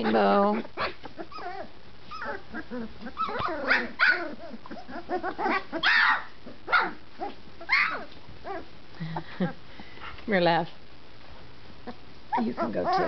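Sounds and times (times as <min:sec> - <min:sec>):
puppies barking and whining: 0:00.0 - 0:08.7, 0:11.8 - 0:13.0.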